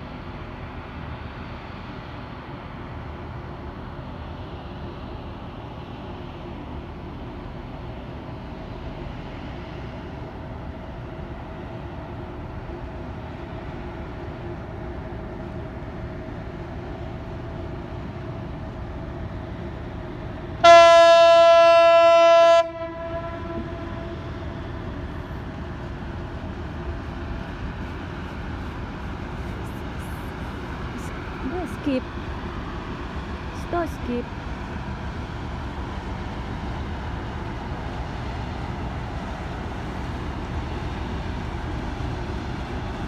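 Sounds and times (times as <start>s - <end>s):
ship's horn blast: 20.6s - 24.4s.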